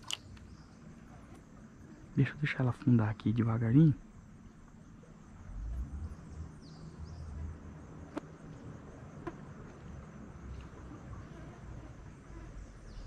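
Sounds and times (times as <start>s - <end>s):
low rumble: 5.2s - 9.0s.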